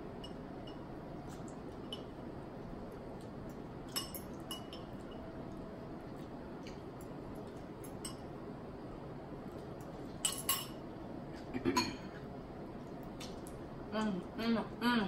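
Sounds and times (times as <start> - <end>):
steady room hiss: 0.0 - 15.0
forks clinking against glass bowls: 3.9 - 5.3, 10.2 - 10.8.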